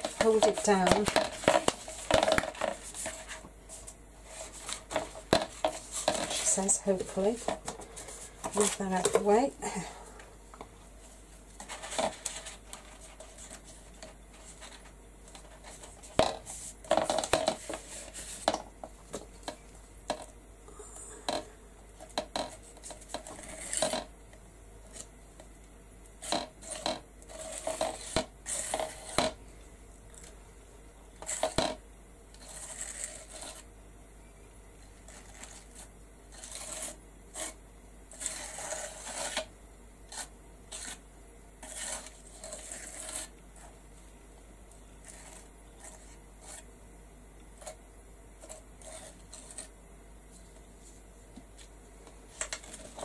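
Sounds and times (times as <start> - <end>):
palette knife scraping paste: 32.4 - 33.7, 35.1 - 39.5, 40.1 - 41.0, 41.6 - 43.8, 45.0 - 46.7, 48.4 - 49.7.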